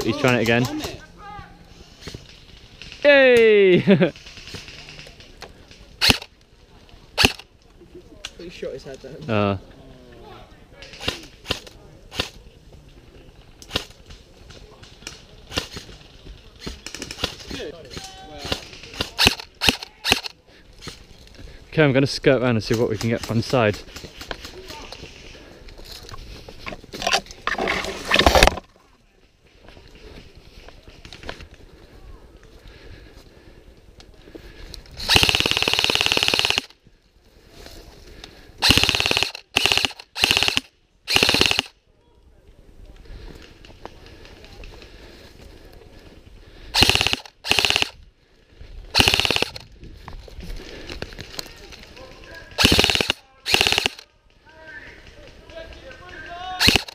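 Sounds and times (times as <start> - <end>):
airsoft rifle firing full-auto: 35.0 - 36.7, 38.6 - 41.7, 46.8 - 48.0, 48.9 - 49.6, 52.6 - 54.0, 56.6 - 56.9
airsoft gun shots: 46.8 - 47.9, 49.0 - 49.6, 52.6 - 54.0, 56.6 - 56.9.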